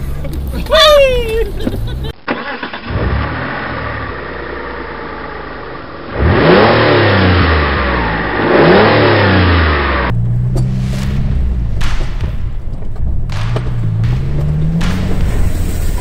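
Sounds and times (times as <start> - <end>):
car engine revving: 1.5 - 16.0
engine running low and steady: 1.6 - 16.0
engine knocks: 10.1 - 16.0.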